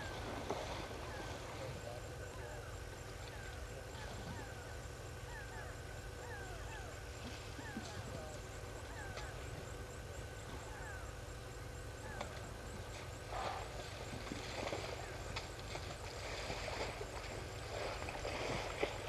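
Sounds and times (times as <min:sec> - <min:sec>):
low background hum: 0:00.0 - 0:19.0
elephants splashing in mud: 0:12.9 - 0:19.0.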